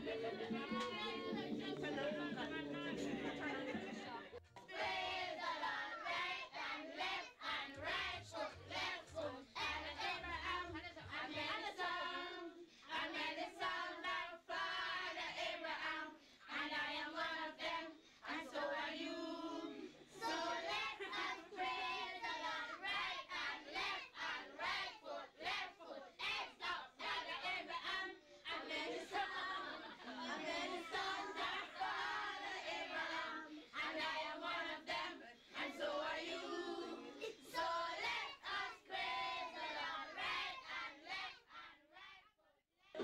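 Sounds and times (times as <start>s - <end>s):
rhythmic hand-clapping: 0.0s - 6.4s
group singing together: 0.0s - 42.1s.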